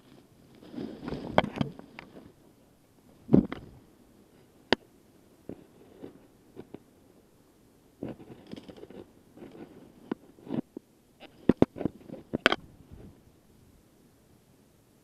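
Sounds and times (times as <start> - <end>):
rustling undergrowth: 0.0 - 4.6.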